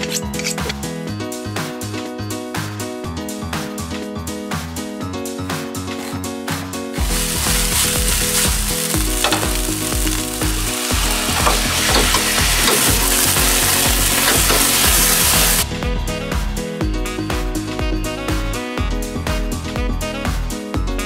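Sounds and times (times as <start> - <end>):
background music: 0.0 - 21.0
vegetables sizzling in oil: 7.0 - 15.6.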